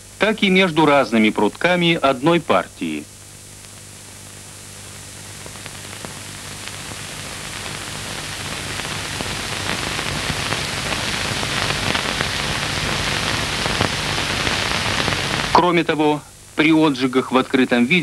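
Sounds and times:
steady hiss with crackles: 0.0 - 18.0.

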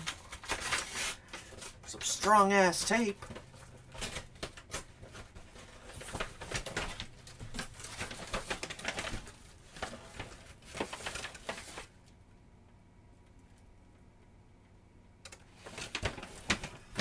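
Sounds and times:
packaging rustling and crinkling: 0.0 - 12.0, 15.5 - 17.0.

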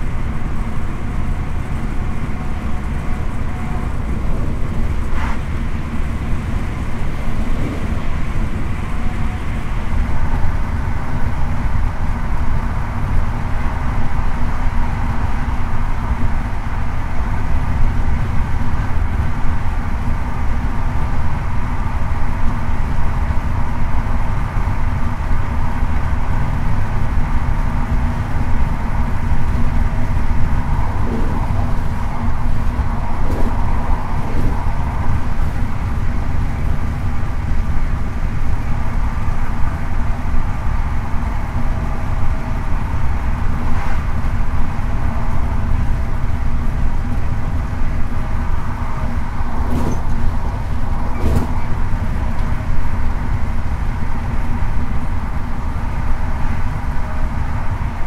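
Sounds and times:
train rumbling: 0.0 - 58.0
wheels clicking over rail joints: 14.4 - 40.4, 44.2 - 55.1.

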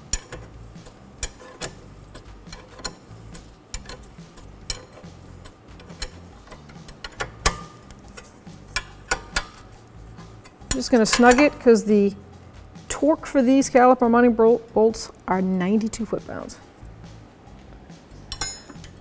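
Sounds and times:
hand ratchet clicking: 0.0 - 11.6.

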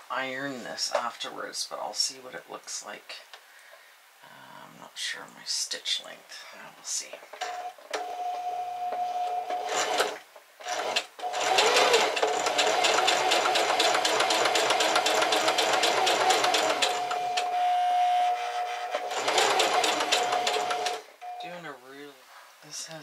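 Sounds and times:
sewing machine stitching: 9.5 - 17.5, 18.1 - 21.1.

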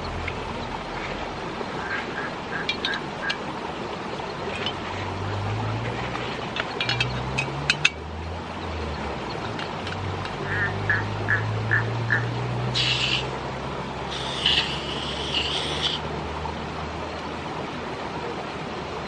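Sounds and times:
frogs croaking: 0.0 - 13.4, 14.0 - 16.1.

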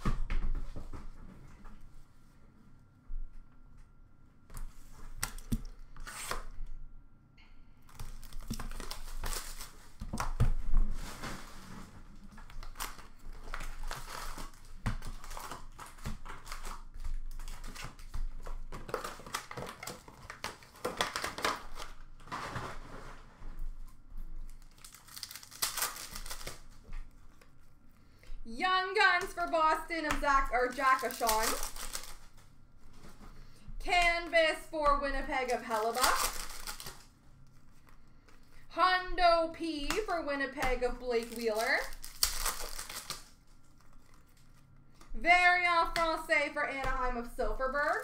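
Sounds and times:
card pack wrappers crinkling and tearing: 7.9 - 10.5, 12.3 - 22.4, 24.4 - 27.6, 29.0 - 32.6, 35.3 - 38.6, 39.9 - 45.1
cards being handled: 39.8 - 45.0.

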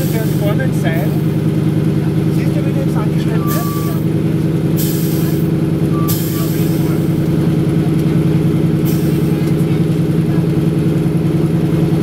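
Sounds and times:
radial engine running steadily: 0.0 - 12.0
pneumatic brakes hissing: 4.8 - 7.2.

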